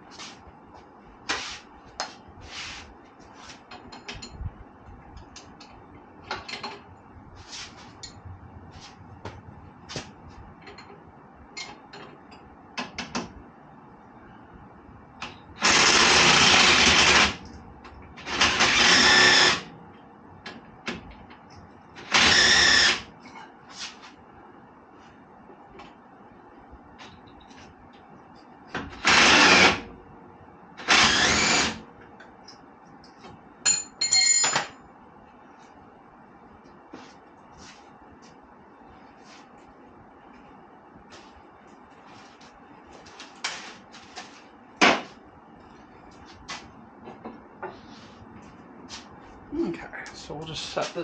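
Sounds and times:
handheld power tool running: 15.6s - 17.4s, 18.3s - 19.6s, 22.0s - 23.0s, 29.0s - 29.8s, 30.8s - 31.8s
tools and metal parts clinking: 33.7s - 34.8s.

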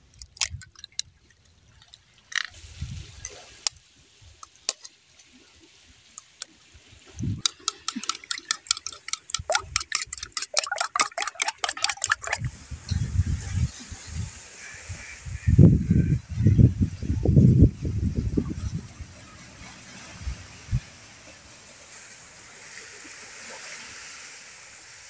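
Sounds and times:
spoon beating eggs in a bowl: 7.4s - 12.5s.

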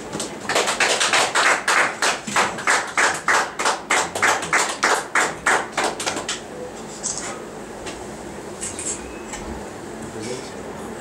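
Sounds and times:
group clapping in rhythm: 0.2s - 6.4s.

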